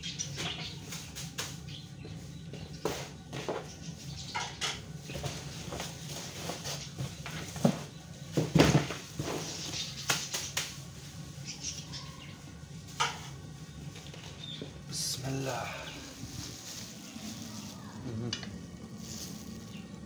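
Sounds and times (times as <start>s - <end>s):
steady low hum: 0.0s - 20.0s
cardboard and plastic bags rustling: 5.1s - 10.3s, 12.8s - 20.0s.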